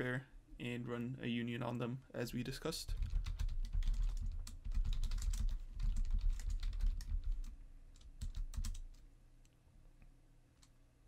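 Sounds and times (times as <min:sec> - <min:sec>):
rapid keyboard typing: 0:02.9 - 0:09.0.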